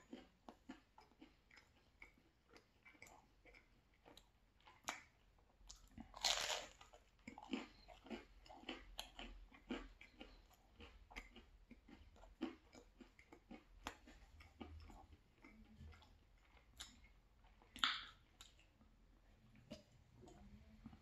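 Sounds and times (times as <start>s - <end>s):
chewing pizza: 0.0s - 21.0s.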